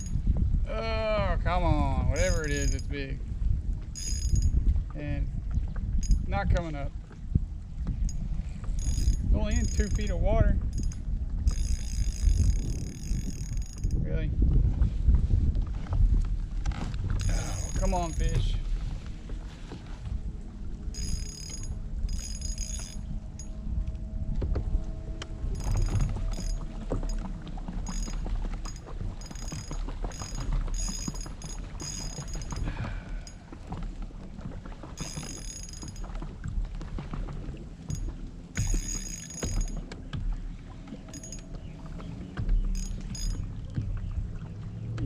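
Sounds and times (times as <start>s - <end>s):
water against kayak: 0.0s - 45.0s
wind on microphone: 0.0s - 45.0s
fishing reel buzzing: 8.8s - 10.1s, 10.7s - 14.0s, 20.9s - 23.5s, 25.5s - 27.2s, 27.8s - 32.6s, 35.0s - 36.0s, 37.9s - 39.8s.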